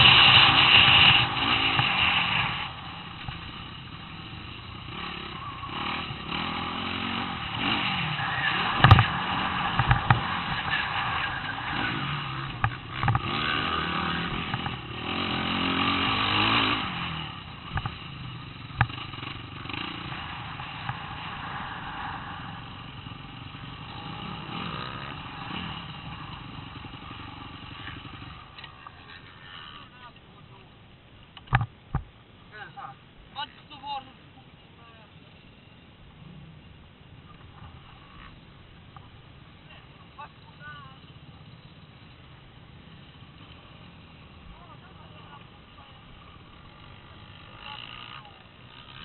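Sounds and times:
dirt bike engine revving: 0.0 - 30.0, 39.4 - 49.0
sharp knocks from bumps: 8.8 - 10.4.

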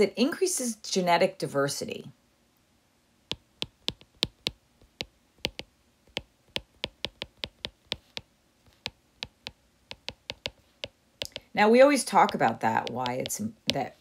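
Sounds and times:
keyboard key clicks: 3.3 - 8.2.

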